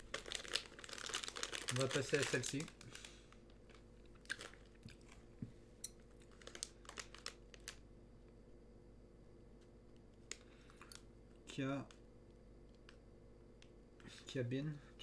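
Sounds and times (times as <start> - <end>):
plastic snack bag crinkling: 0.0 - 5.3, 5.9 - 7.9.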